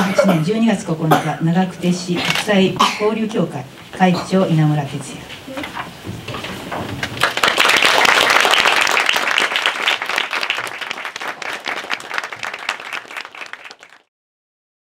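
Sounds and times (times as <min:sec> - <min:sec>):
audience applauding: 0:07.0 - 0:14.1.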